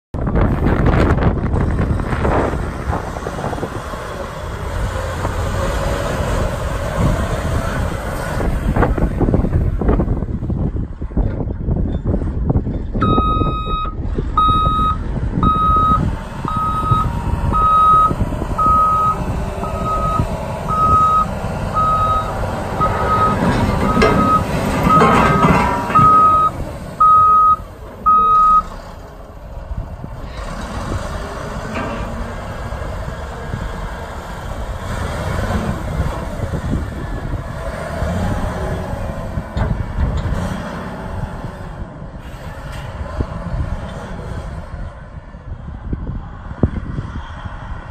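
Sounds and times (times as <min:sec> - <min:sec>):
diesel engine running: 0:00.2 - 0:46.6
backup alarm beeping: 0:13.0 - 0:28.7.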